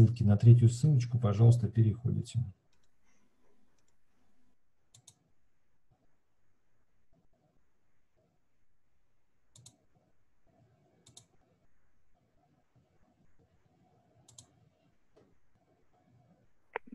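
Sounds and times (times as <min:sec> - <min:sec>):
faint clicks: 0:02.7 - 0:04.0, 0:04.9 - 0:05.2, 0:09.5 - 0:09.8, 0:11.0 - 0:11.4, 0:14.2 - 0:14.6.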